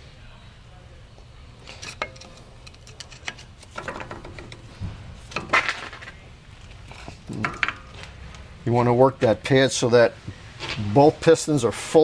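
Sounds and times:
screwdriver scraping clatters: 0:01.6 - 0:08.1
metal clicks: 0:01.7 - 0:04.7.

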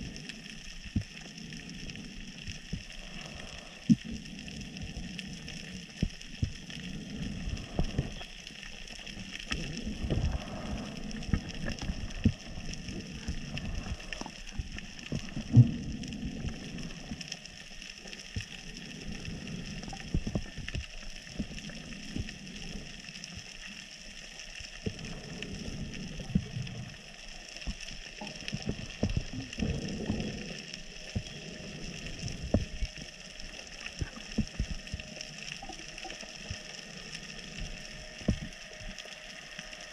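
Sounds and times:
underwater hiss: 0:00.0 - 0:39.9
underwater clicks and knocks: 0:38.2 - 0:38.6.

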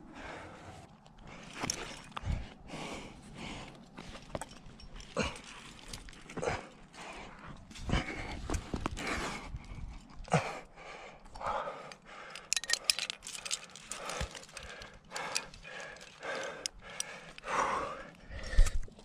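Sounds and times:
carabiner clicks and gear jingle: 0:01.0 - 0:02.6, 0:03.6 - 0:07.7, 0:11.3 - 0:19.0
person panting hard: 0:02.2 - 0:04.0, 0:06.4 - 0:18.9.

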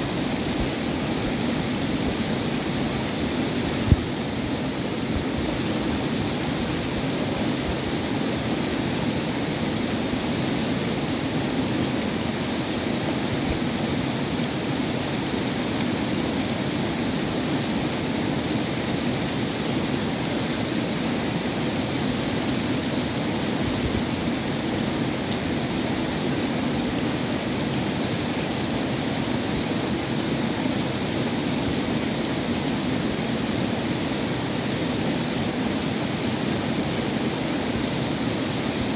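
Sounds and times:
river rushing over rocks: 0:00.0 - 0:38.9.

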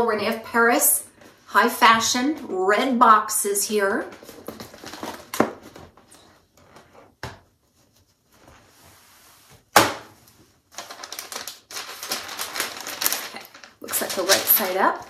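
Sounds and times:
tissue paper rustling: 0:10.3 - 0:15.0.

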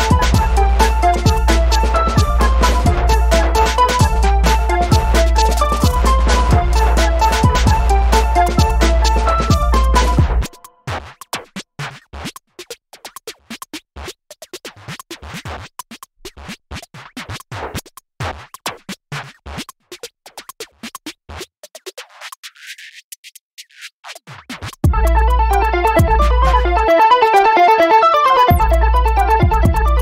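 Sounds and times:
loud music passage: 0:00.0 - 0:10.5, 0:24.9 - 0:30.0
sparse beat of clicks and hits: 0:00.0 - 0:22.5, 0:24.1 - 0:27.0, 0:28.5 - 0:30.0.

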